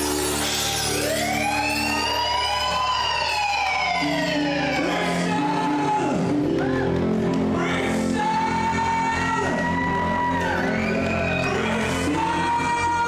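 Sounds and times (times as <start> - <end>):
vocalist singing: 4.6 - 6.6, 7.3 - 13.0.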